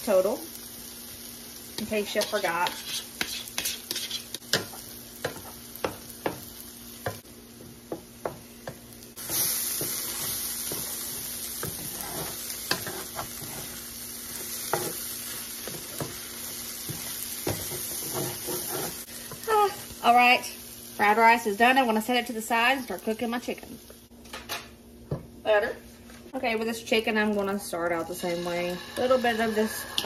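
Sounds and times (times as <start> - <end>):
food sizzling in a skillet: 0.0 - 24.1, 26.8 - 30.0
wooden spoon scraping a pan: 1.8 - 5.6, 9.2 - 15.0, 16.8 - 19.4, 28.2 - 30.0.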